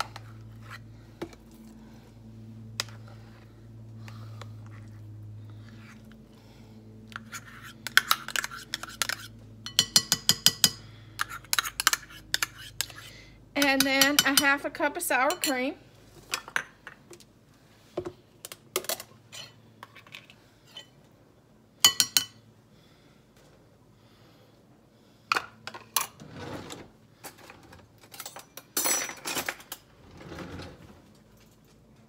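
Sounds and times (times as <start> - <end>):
utensils clinking on counter: 7.9 - 13.0, 28.0 - 29.8.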